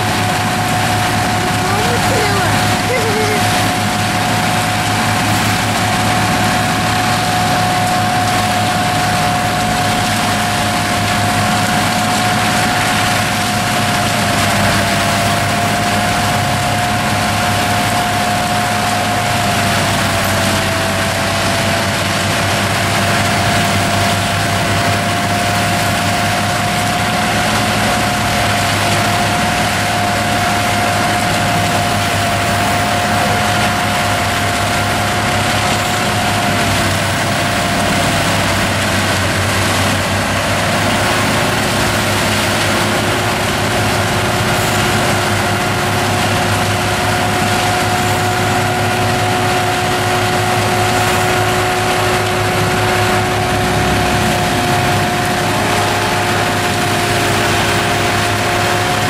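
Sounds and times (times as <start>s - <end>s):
mulcher rotor grinding wood: 0.0s - 59.0s
tractor engine under load: 0.0s - 59.0s
steady whine: 27.4s - 59.0s.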